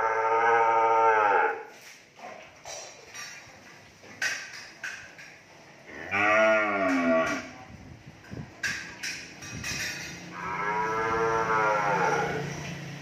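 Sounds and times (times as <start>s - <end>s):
cattle mooing: 0.0s - 1.7s, 5.9s - 7.5s, 10.3s - 12.6s.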